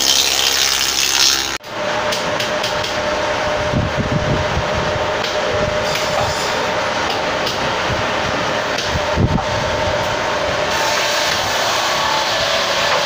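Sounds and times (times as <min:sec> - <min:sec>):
spindle moulder cutting wood: 0:00.0 - 0:01.6
machine hum with whine: 0:00.0 - 0:13.0.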